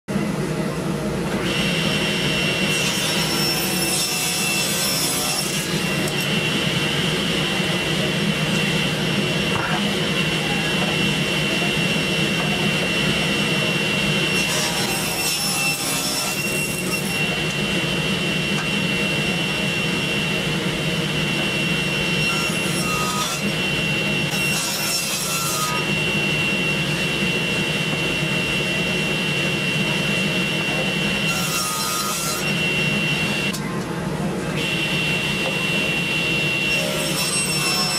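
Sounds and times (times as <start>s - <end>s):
table saw running: 0.2s - 33.7s, 34.4s - 37.9s.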